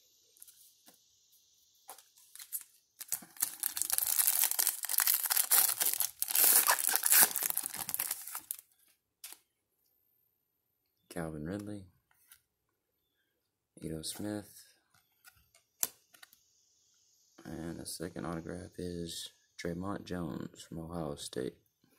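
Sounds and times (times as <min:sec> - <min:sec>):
foil wrapper tearing and crinkling: 0:02.3 - 0:08.6.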